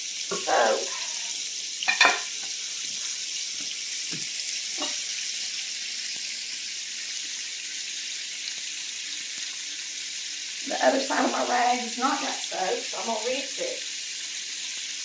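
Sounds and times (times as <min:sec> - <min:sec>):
steady hiss: 0:00.0 - 0:15.0
metal pan clattering: 0:01.9 - 0:02.4.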